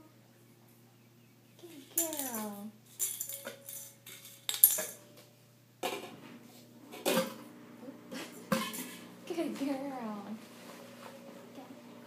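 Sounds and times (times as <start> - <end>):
cans and plastic cups clattering: 1.8 - 5.0, 6.9 - 7.4, 8.5 - 9.1.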